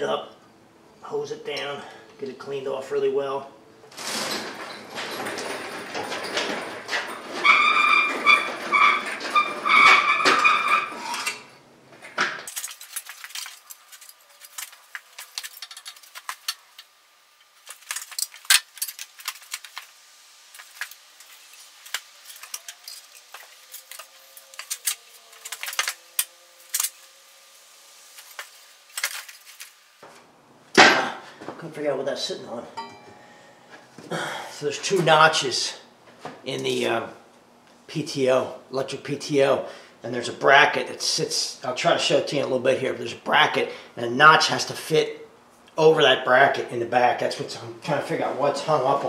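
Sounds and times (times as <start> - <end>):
mechanical noise with pulsing whine: 2.2 - 30.6.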